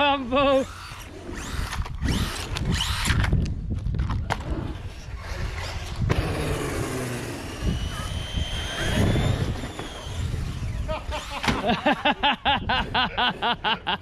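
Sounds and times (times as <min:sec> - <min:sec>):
thin motor whine: 0:00.2 - 0:03.4, 0:04.8 - 0:12.0
toy car rumbling over concrete: 0:00.5 - 0:11.8.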